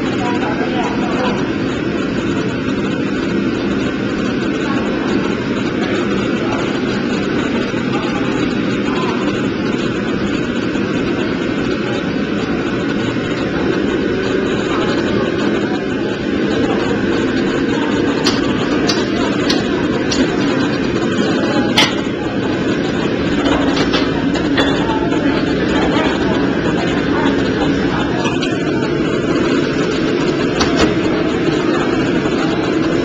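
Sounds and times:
gas burner roaring: 0:00.0 - 0:33.0.

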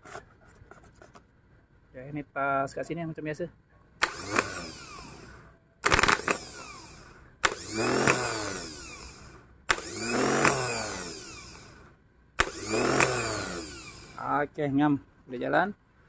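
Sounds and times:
starter motor whirring: 0:04.0 - 0:14.3.

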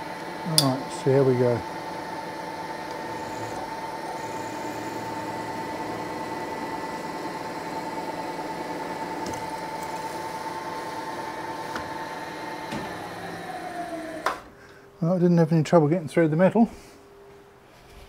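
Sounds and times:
milling spindle whine: 0:00.0 - 0:14.4
drill boring through metal: 0:00.4 - 0:14.4.

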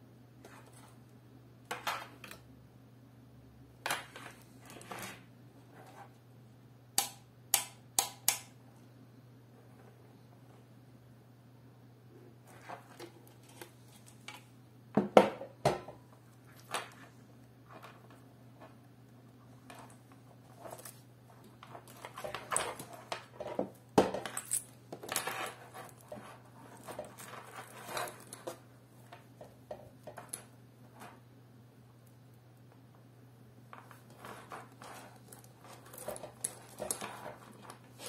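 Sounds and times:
cables clicking and rustling: 0:19.4 - 0:31.2, 0:33.7 - 0:38.0.

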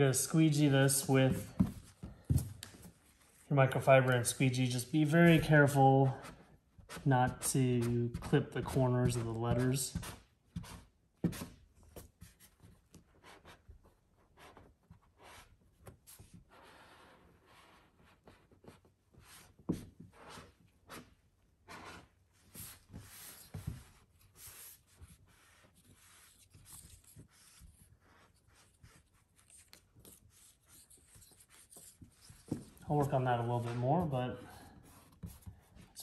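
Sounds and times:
squeegee scraping over decal: 0:14.5 - 0:36.0.

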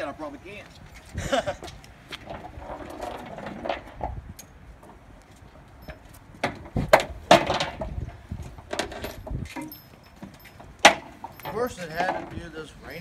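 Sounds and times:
metal clinks of straps and hooks: 0:05.7 - 0:06.4, 0:08.8 - 0:12.3
sharp knocks on trailer: 0:06.4 - 0:08.0.

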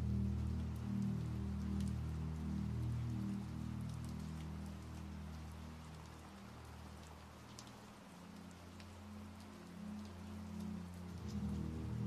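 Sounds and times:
rain on a hard wet surface: 0:00.0 - 0:12.0
soft ambient music pad: 0:00.0 - 0:12.0.

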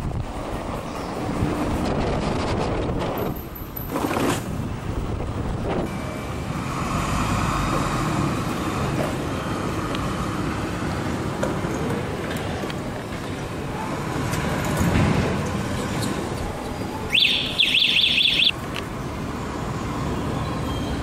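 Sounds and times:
vehicles passing by: 0:04.4 - 0:21.0.

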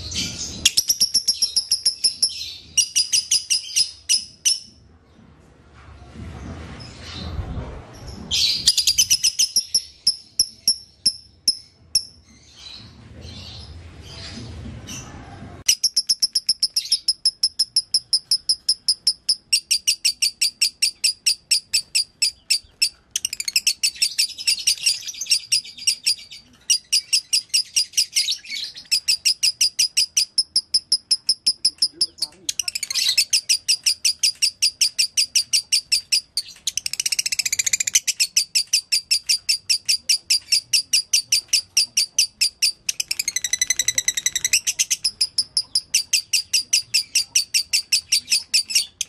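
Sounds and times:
lovebird high rapid chirps: 0:00.2 - 0:04.7, 0:08.7 - 0:12.2, 0:15.7 - 0:49.0
low rumble: 0:04.8 - 0:09.2.

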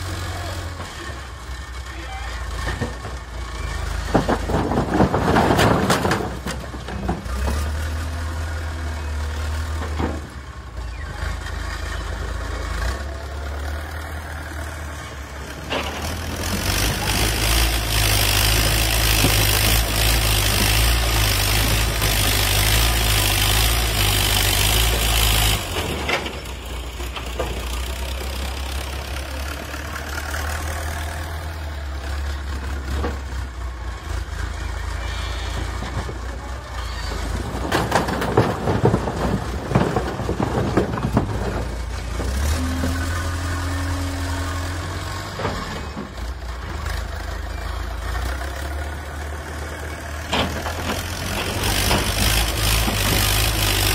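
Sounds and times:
diesel engine running: 0:00.0 - 0:53.9
concrete blocks tumbling: 0:03.8 - 0:08.0, 0:35.6 - 0:43.4.

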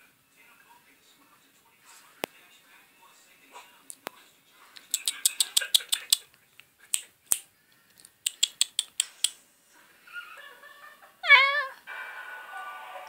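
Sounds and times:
faint music: 0:00.0 - 0:13.0
cat meowing: 0:11.2 - 0:11.8.

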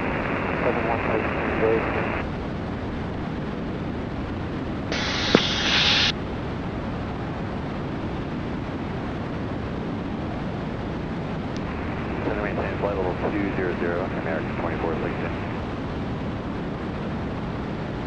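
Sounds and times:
aircraft engines droning: 0:04.9 - 0:06.1, 0:11.5 - 0:16.2
burst of hiss: 0:04.9 - 0:06.1
click: 0:05.2 - 0:05.8.

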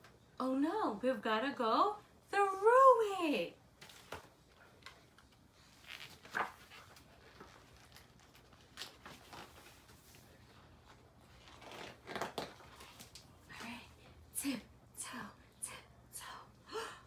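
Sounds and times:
book pages turning: 0:03.8 - 0:13.4.

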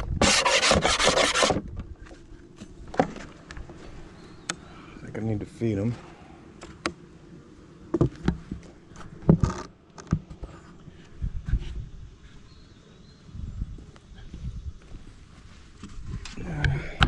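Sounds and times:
wood scraping: 0:00.0 - 0:04.0
wooden hive parts knocking: 0:07.9 - 0:10.4.

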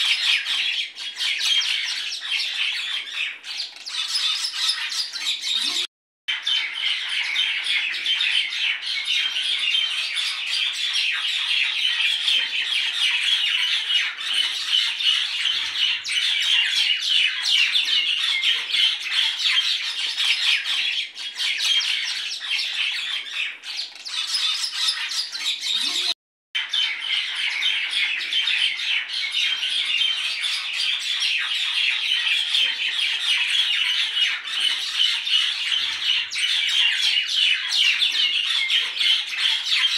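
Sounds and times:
birds chirping and squawking: 0:00.0 - 0:39.9.

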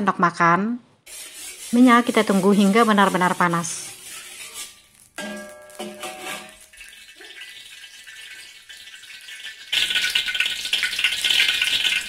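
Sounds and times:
metal spatula clinking on wok: 0:05.2 - 0:06.9.

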